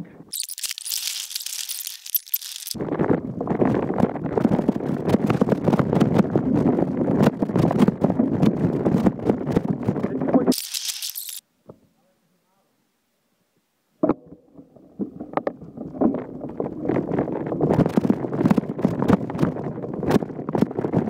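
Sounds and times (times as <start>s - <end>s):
bike rattling on rough trail: 0.3s - 11.4s, 15.3s - 21.0s.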